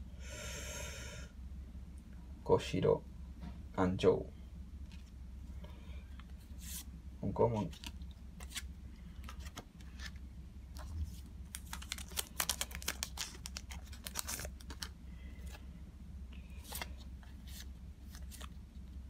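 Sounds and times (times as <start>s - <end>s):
foil wrapper crinkling: 11.5s - 15.0s.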